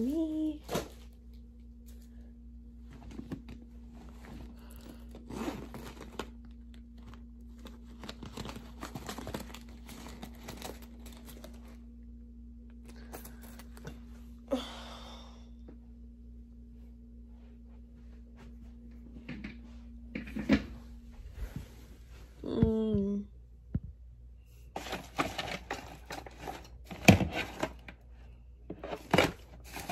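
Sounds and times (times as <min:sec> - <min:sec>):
faint steady hum: 0:00.0 - 0:29.9
rustling and crinkling: 0:00.2 - 0:12.0, 0:24.6 - 0:29.9.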